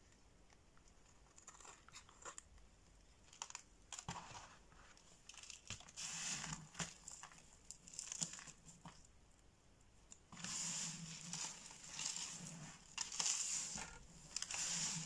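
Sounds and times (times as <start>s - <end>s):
soap shavings crunching: 5.3s - 8.6s, 10.4s - 15.0s.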